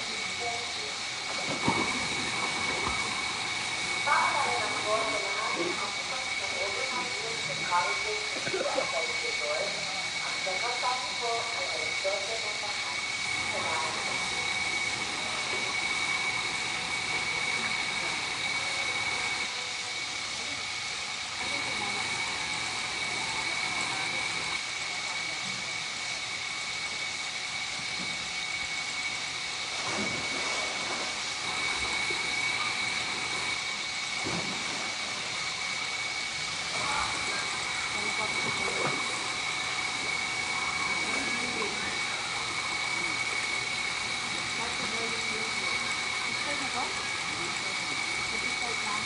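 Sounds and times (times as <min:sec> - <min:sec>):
waterfall pouring into pool: 0:00.0 - 0:08.9, 0:29.7 - 0:48.9
high-pitched whine: 0:00.0 - 0:49.0.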